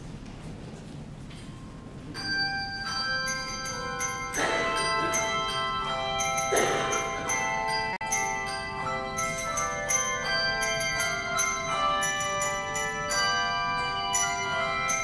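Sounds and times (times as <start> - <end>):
handbell choir ringing chords: 2.1 - 15.0.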